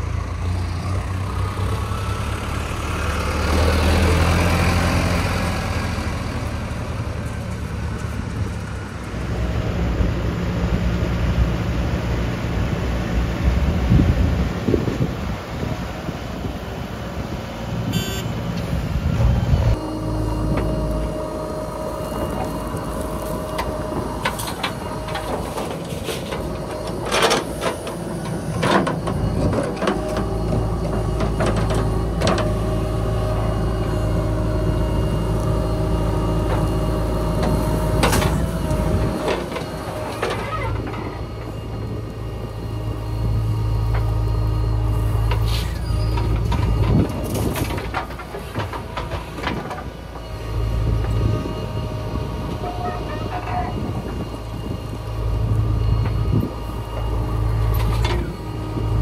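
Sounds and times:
diesel engine under load: 0:00.0 - 0:59.0
soil and stones clattering in truck: 0:20.5 - 0:34.6, 0:35.2 - 0:41.9, 0:45.0 - 0:51.6, 0:55.6 - 0:59.0.

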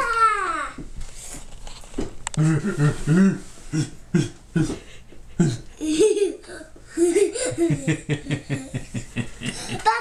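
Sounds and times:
man laughing: 0:02.4 - 0:06.4, 0:07.0 - 0:10.0
young child laughing: 0:05.4 - 0:10.0.

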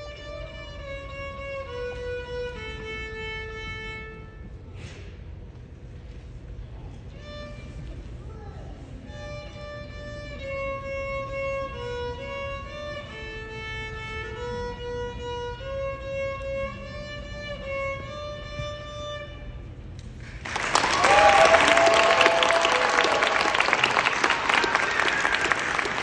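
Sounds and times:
solo violin melody: 0:00.0 - 0:04.7, 0:07.0 - 0:08.1, 0:08.9 - 0:19.9
low background hum: 0:00.0 - 0:26.0.

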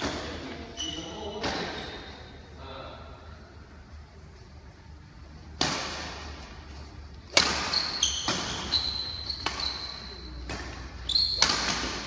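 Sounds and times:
shoe squeaks on court floor: 0:00.6 - 0:01.6, 0:07.4 - 0:12.0
racket hitting shuttlecock: 0:05.5 - 0:06.5, 0:07.3 - 0:12.0.

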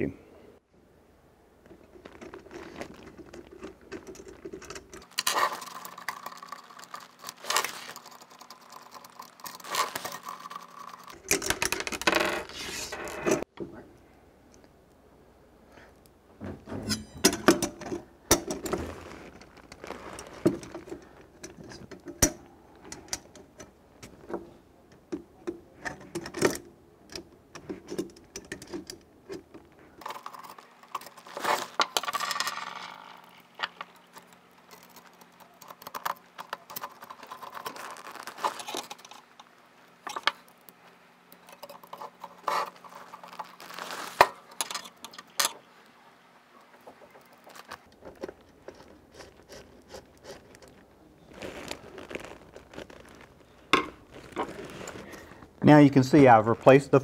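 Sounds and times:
metal screws clicking and rattling: 0:02.2 - 0:12.2, 0:25.9 - 0:40.7, 0:44.2 - 0:45.6
screw scraping as turned in: 0:02.3 - 0:13.5.

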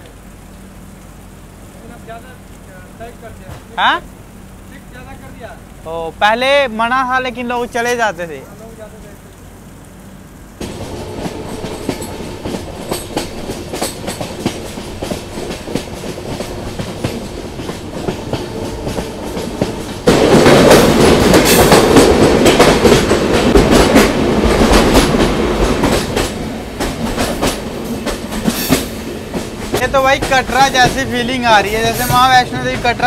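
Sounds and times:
train rumbling: 0:00.0 - 0:33.0
wheels clicking over rail joints: 0:10.6 - 0:33.0.

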